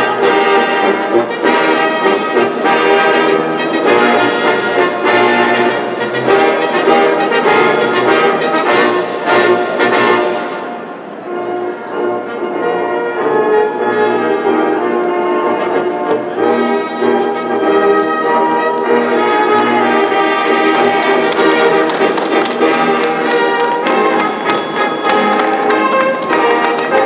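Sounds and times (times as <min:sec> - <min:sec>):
brass ensemble playing chords: 0:00.0 - 0:27.0.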